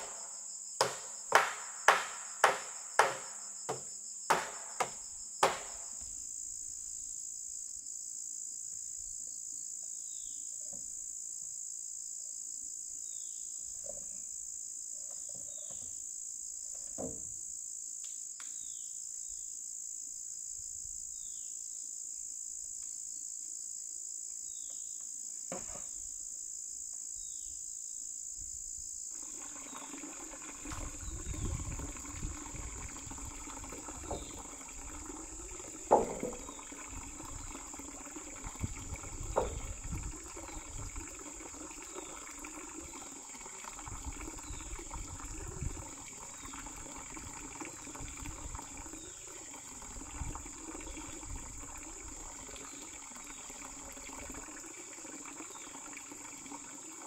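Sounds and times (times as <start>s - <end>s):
insects droning: 0.0s - 57.0s
hammer blows: 0.8s - 5.8s.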